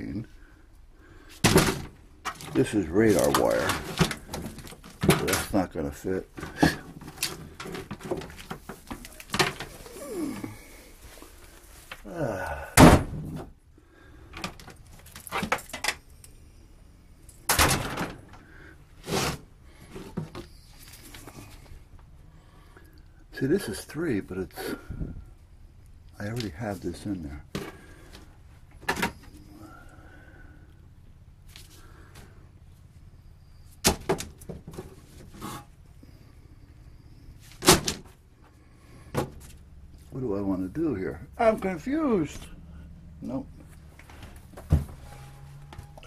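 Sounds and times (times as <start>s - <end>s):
cable coils knocking and rustling: 6.3s - 9.9s.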